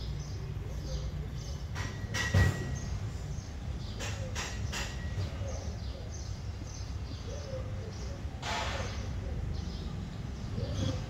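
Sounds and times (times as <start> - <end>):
sharp knocks: 1.7 - 2.9.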